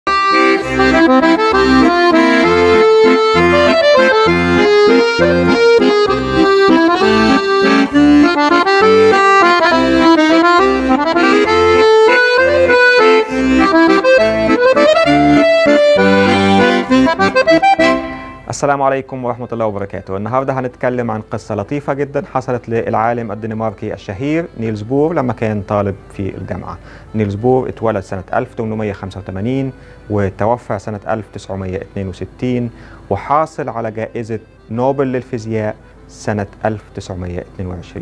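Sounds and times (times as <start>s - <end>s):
instrumental intro music: 0.1s - 20.2s.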